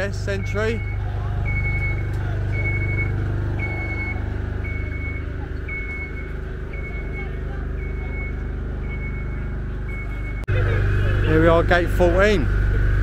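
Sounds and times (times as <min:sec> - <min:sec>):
low engine hum: 0:00.0 - 0:13.0
high alarm beeps: 0:00.3 - 0:10.5.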